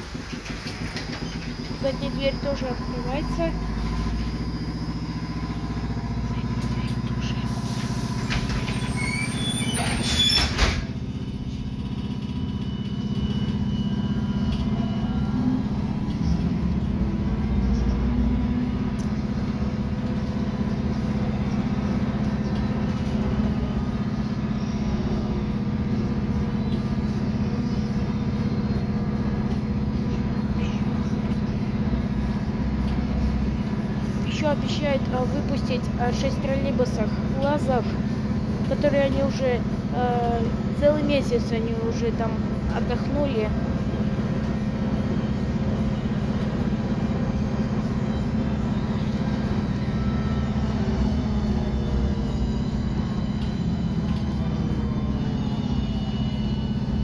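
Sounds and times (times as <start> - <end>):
bus doors closing clunk: 0.0 - 1.8, 7.6 - 11.2
trolleybus running hum: 0.0 - 57.0.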